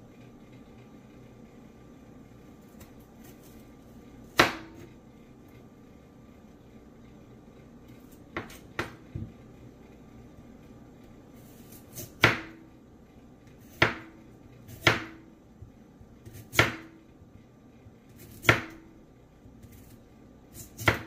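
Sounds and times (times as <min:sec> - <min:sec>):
knife chopping carrot on board: 0:04.3 - 0:04.9, 0:08.3 - 0:09.3, 0:11.7 - 0:12.6, 0:13.6 - 0:15.2, 0:16.2 - 0:17.0, 0:18.1 - 0:18.9, 0:19.6 - 0:21.0.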